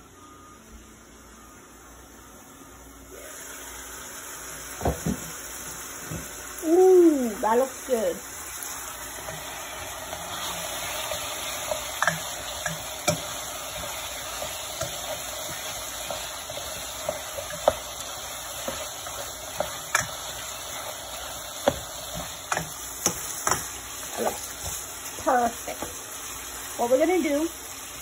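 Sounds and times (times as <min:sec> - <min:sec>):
curry sizzling in a pot: 0:03.1 - 0:28.0
sharp pops of frying oil: 0:12.0 - 0:13.3, 0:21.6 - 0:23.8.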